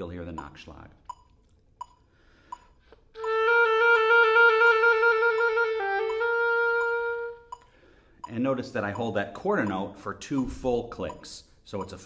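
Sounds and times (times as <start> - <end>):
metronome clicking: 0.3 - 12.0
oboe trill: 3.2 - 7.9.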